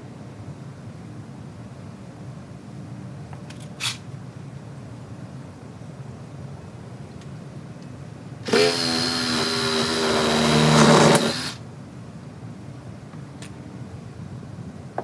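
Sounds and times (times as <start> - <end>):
cordless drill driving screw: 8.4 - 11.6.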